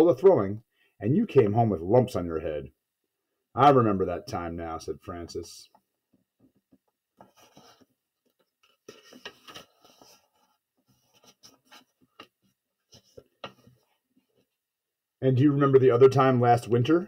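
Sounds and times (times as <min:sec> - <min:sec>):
paper page rustling: 0:07.2 - 0:13.8.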